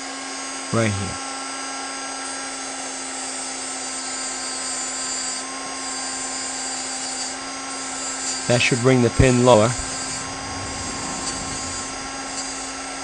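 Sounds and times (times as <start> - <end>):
rotary tool whine: 4.8 - 13.0
grinding hiss on metal: 7.9 - 13.0.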